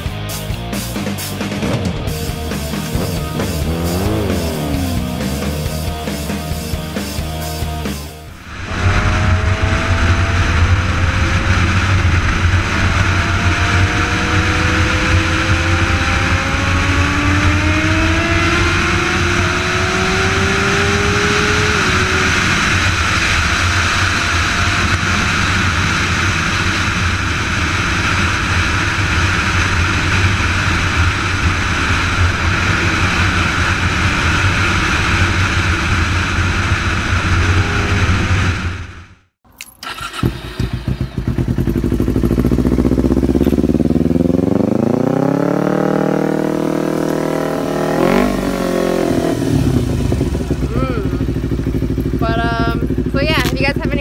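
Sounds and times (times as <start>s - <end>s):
motorcycle engine accelerating: 0.0s - 54.0s
wind rush on microphone: 8.4s - 39.0s.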